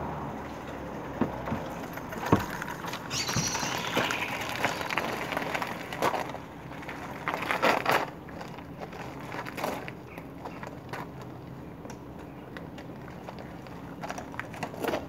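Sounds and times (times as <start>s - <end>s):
moped wheeled over stones: 0.3s - 15.0s
footsteps crunching on gravel: 3.1s - 11.3s.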